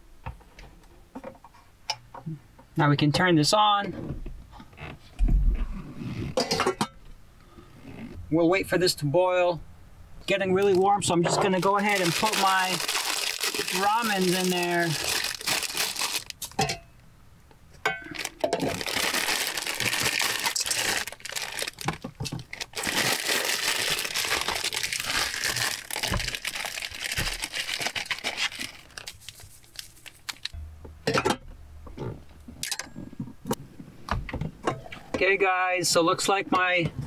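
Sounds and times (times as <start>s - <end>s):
plastic wrapper crinkling: 11.4s - 16.6s, 18.1s - 30.6s.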